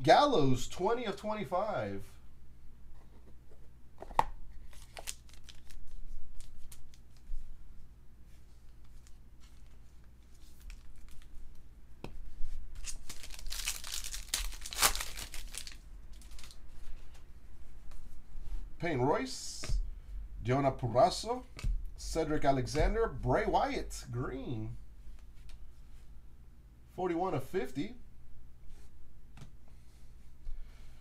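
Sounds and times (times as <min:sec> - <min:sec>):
foil wrapper tearing and crinkling: 0:04.7 - 0:07.0, 0:12.8 - 0:16.6.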